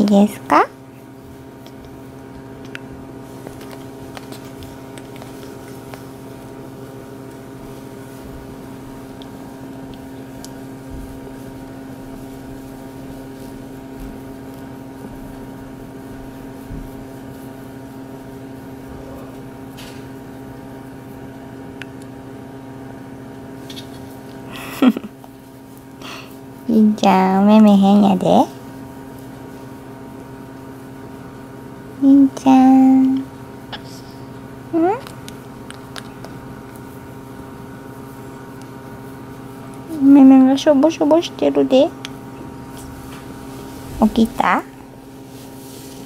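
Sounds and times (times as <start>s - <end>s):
low machine hum: 0.0s - 46.0s.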